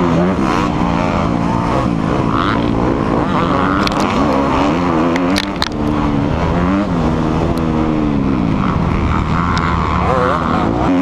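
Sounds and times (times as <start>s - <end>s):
motocross bike engine revving: 0.0s - 11.0s
sharp clicks: 5.1s - 6.0s.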